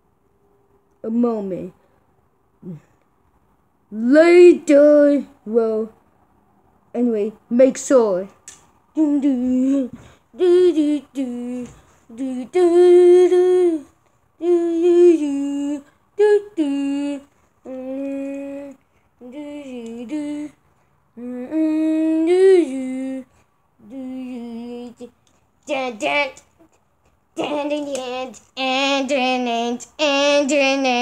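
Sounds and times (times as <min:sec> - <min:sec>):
child singing: 0:08.9 - 0:20.6, 0:21.2 - 0:26.7, 0:27.4 - 0:31.0.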